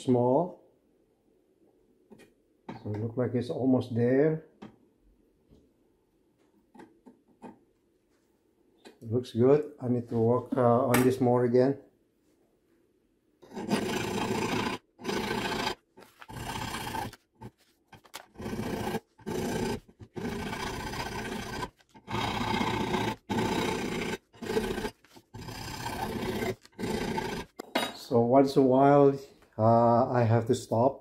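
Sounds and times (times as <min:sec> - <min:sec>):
hand file rasping on steel: 0:13.5 - 0:17.6, 0:18.3 - 0:27.6.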